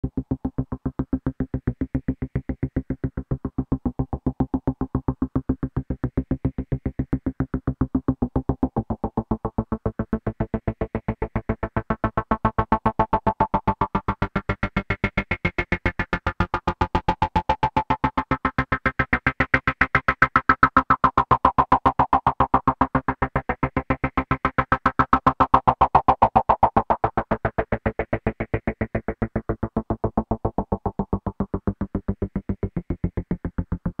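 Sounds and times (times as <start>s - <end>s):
synthesizer bass loop: 7.7s - 34.0s.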